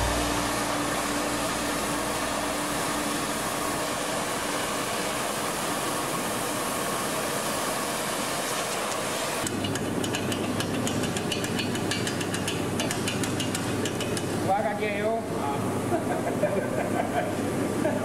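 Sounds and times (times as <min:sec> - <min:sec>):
gas torch flame hissing: 0:00.5 - 0:09.7.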